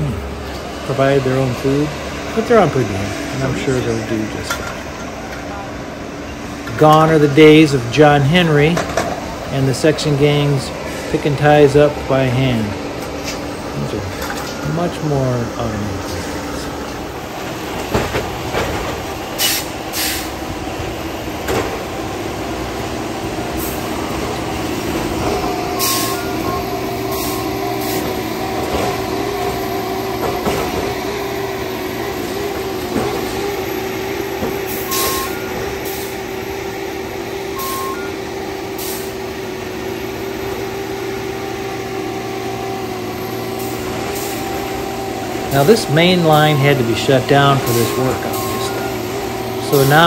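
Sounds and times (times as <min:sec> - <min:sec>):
diesel machine running: 0:00.0 - 0:50.0
air release hisses: 0:19.4 - 0:20.4
brief beeps: 0:34.9 - 0:35.6, 0:37.6 - 0:38.2, 0:47.5 - 0:49.0.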